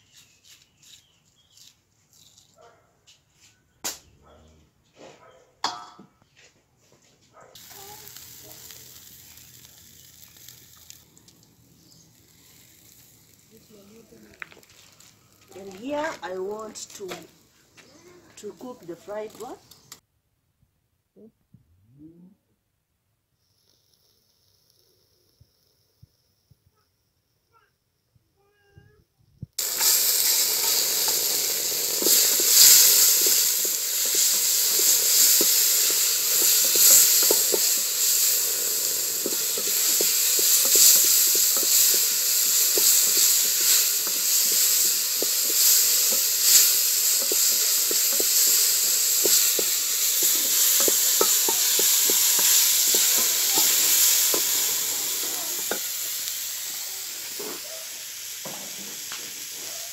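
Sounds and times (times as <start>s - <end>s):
chicken sizzling in pot: 7.6s - 17.5s, 23.4s - 26.4s, 29.6s - 59.9s.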